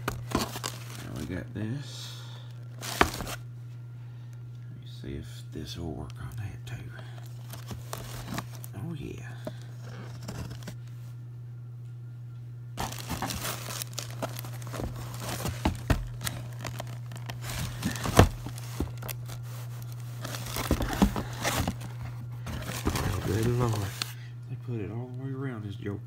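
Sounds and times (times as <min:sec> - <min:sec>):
plastic packaging crinkling: 0:00.0 - 0:01.3, 0:02.6 - 0:03.4, 0:07.2 - 0:08.8, 0:12.8 - 0:24.1
steady low hum: 0:00.0 - 0:26.0.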